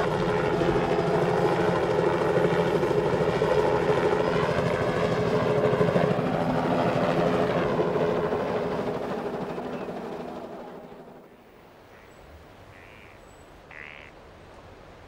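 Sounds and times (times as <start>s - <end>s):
helicopter rotor chopping: 0.0s - 11.3s.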